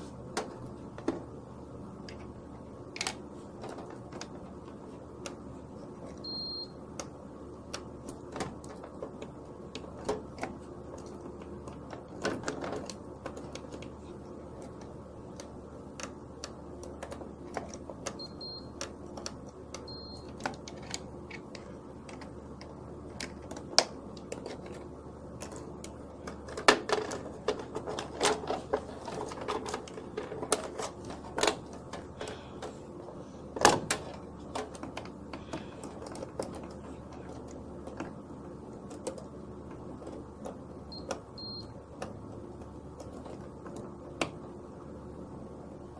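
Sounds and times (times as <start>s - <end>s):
faint steady hum: 0.0s - 45.9s
multimeter buzzer beeps: 6.2s - 6.8s, 18.2s - 18.8s, 19.8s - 20.4s, 40.9s - 41.8s.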